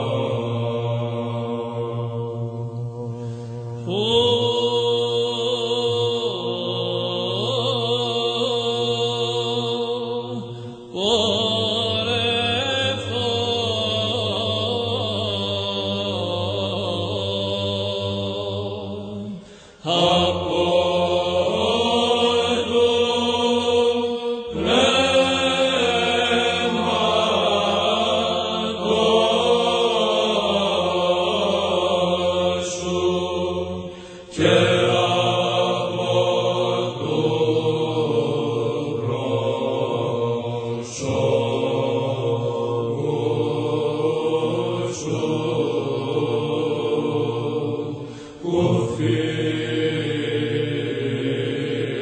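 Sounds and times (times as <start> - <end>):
person chanting a psalm: 0.0 - 52.0.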